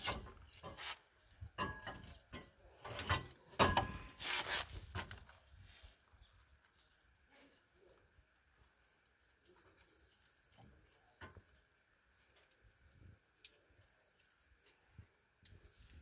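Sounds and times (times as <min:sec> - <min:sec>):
hand tool clicking and scraping: 0:00.0 - 0:05.2.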